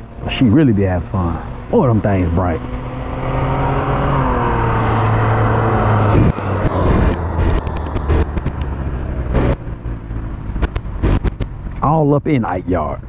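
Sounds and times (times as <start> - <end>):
motor trike engine passing: 0.0 - 6.6.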